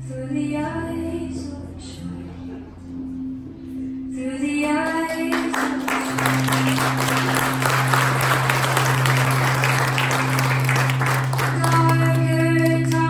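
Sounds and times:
recorded music playing: 0.0 - 13.0
audience clapping: 4.7 - 13.0.

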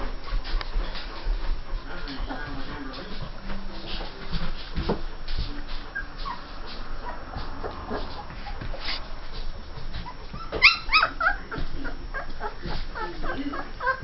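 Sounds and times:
puppies whimpering: 5.9 - 9.0, 9.8 - 14.0
puppy high squeals: 10.3 - 11.4.

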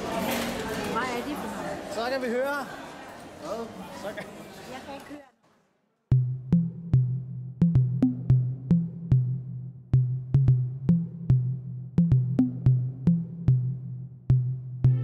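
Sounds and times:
deep bass line: 6.1 - 15.0
electronic music with drum machine: 6.1 - 15.0.

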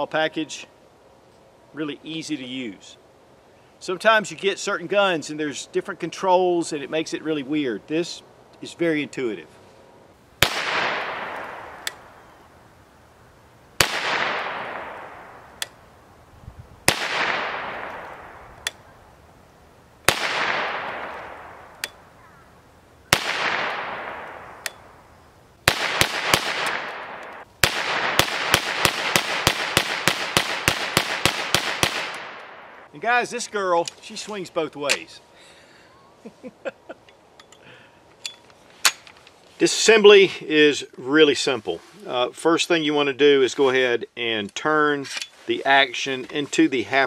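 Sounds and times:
gunshots with echo: 10.4 - 11.8, 13.8 - 15.4, 16.9 - 18.4, 20.1 - 21.7, 23.1 - 24.6, 25.7 - 32.9
rapid gunfire: 25.7 - 32.4.

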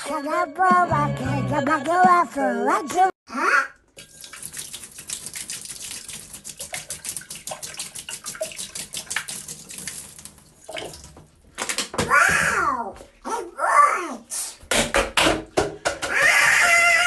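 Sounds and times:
squawking cartoon duck voice: 3.3 - 3.8, 16.1 - 17.0
water running into a bathtub: 3.8 - 13.3.

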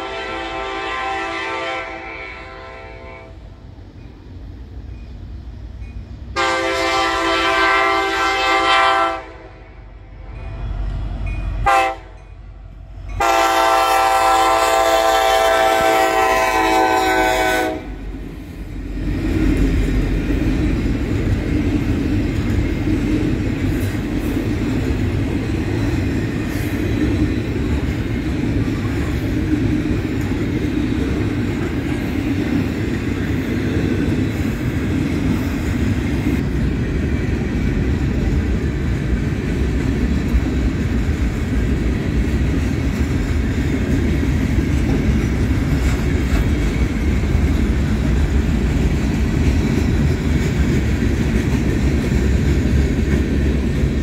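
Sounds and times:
locomotive air horn blasts: 0.0 - 3.4, 6.4 - 9.8, 11.6 - 12.2, 13.2 - 18.0
train wheels rumbling on rails: 0.0 - 54.0.

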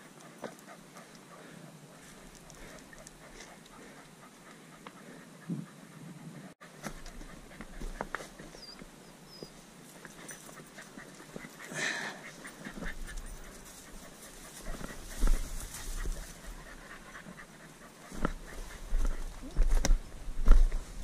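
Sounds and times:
dog panting: 0.0 - 19.8
rustle: 0.0 - 21.0
footsteps on loose rocks: 12.6 - 16.6.

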